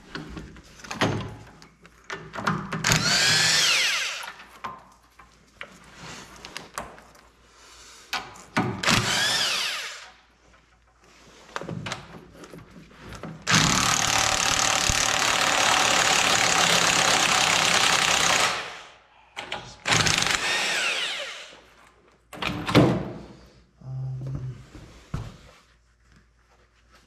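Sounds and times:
power tool running: 8.9s - 10.1s, 13.5s - 18.9s, 19.9s - 21.6s.

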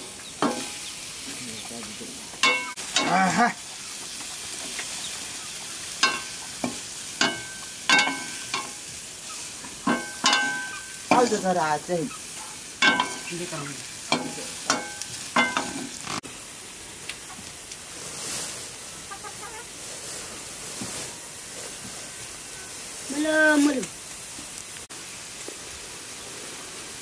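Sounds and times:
meat frying sizzle: 0.0s - 27.0s
metal ladle clanking on pan: 0.4s - 0.8s, 2.4s - 3.2s, 6.0s - 8.8s, 9.8s - 11.3s, 12.8s - 13.4s, 14.1s - 16.0s.

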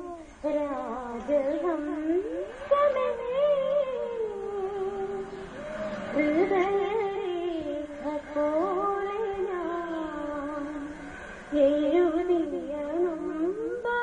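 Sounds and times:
woman singing: 0.0s - 5.4s, 6.1s - 14.0s
singer breathing: 10.2s - 12.4s.

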